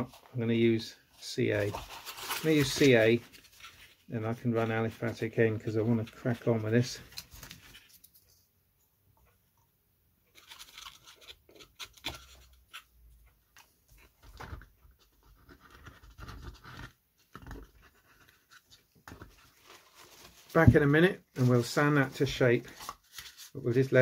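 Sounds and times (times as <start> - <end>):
hands handling small wooden box: 10.3 - 20.8, 22.6 - 23.5.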